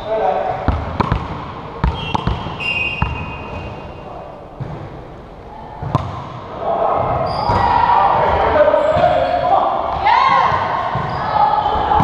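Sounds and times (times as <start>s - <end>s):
sneaker squeaks: 0.0s - 4.1s, 7.0s - 9.5s, 10.3s - 12.0s.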